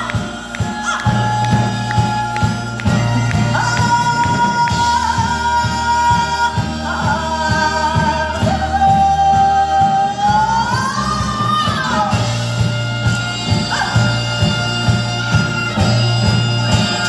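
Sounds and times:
traditional orchestra music: 0.0s - 9.6s, 10.2s - 17.0s.

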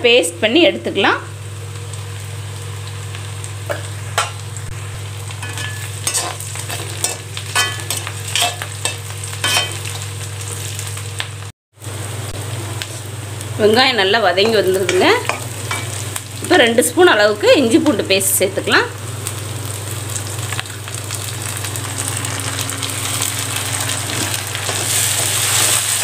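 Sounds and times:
onions sizzling in a pan: 0.0s - 26.0s
metal spatula scraping a pan: 5.4s - 8.7s, 9.4s - 9.8s.

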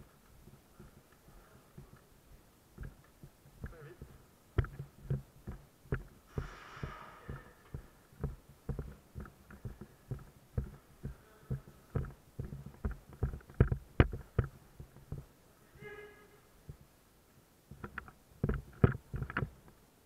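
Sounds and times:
footsteps on concrete floor: 0.0s - 15.3s.

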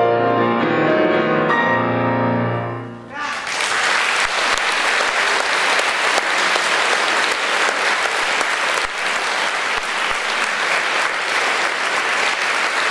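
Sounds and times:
audience applauding: 3.2s - 12.9s.

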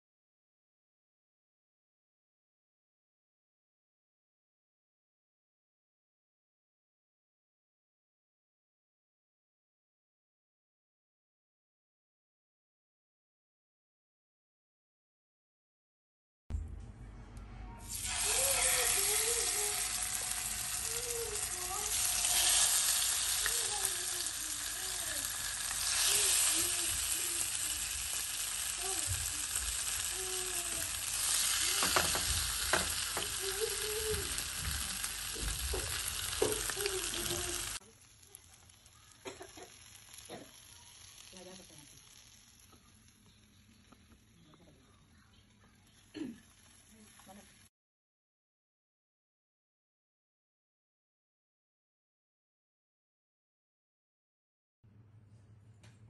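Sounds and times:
fish sizzling in oil: 17.9s - 44.2s, 46.2s - 47.7s.

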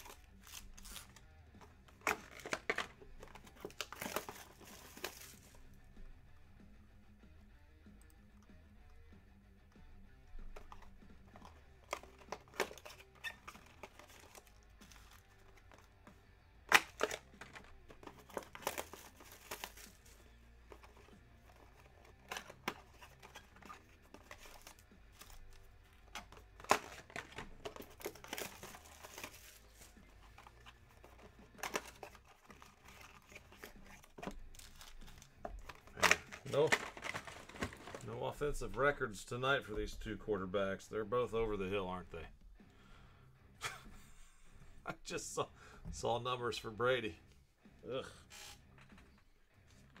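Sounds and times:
plastic wrapping crinkling and tearing: 0.0s - 1.2s, 26.2s - 38.2s.

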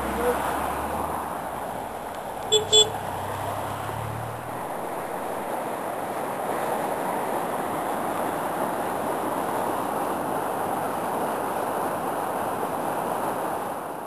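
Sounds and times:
car engine low hum: 0.0s - 5.5s
flooded stream rushing: 0.0s - 14.0s.

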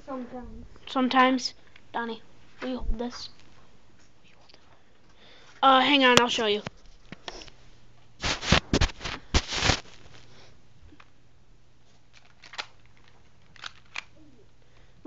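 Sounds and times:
bb gun scraping and rattling: 8.2s - 10.2s.

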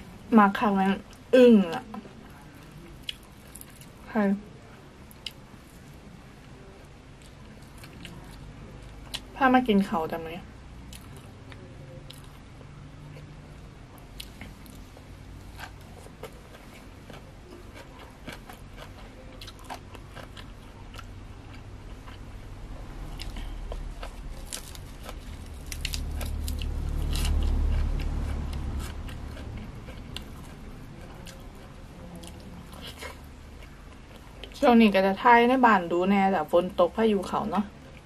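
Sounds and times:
person crunching and chewing: 14.0s - 22.4s, 23.0s - 34.6s
low rumble: 21.2s - 33.6s.

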